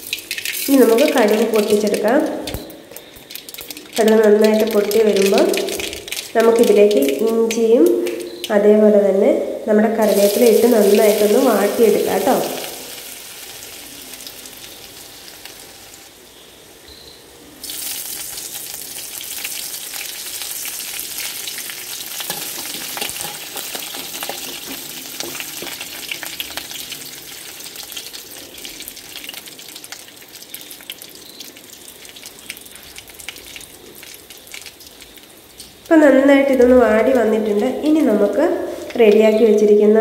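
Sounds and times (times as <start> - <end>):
ginger sizzling in hot oil: 0.0 - 8.5, 10.0 - 16.8, 17.6 - 39.7
oil crackling and spattering: 0.0 - 8.5, 10.1 - 16.1, 17.6 - 36.6
metal ladle scraping pan: 22.2 - 25.8.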